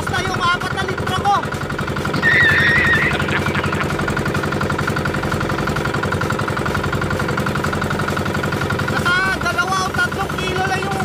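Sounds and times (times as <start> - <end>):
boat engine chugging: 0.0 - 11.0.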